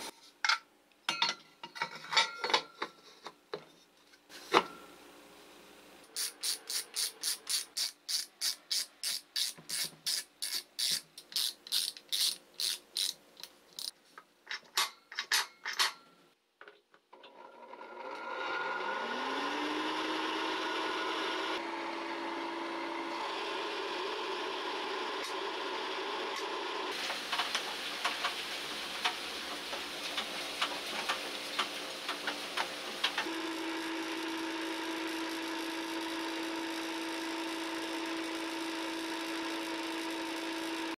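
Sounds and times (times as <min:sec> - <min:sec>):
ratcheting screwdriver clicking: 0:06.2 - 0:13.9
electric blower motor whirring: 0:18.1 - 0:27.0, 0:33.2 - 0:40.9.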